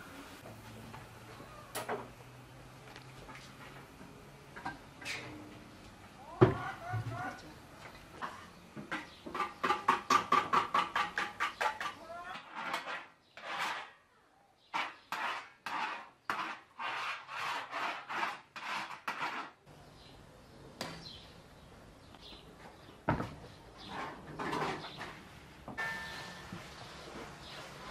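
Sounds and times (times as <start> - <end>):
utensil scraping metal baking tray: 8.2 - 14.0, 14.7 - 19.6, 23.8 - 25.2.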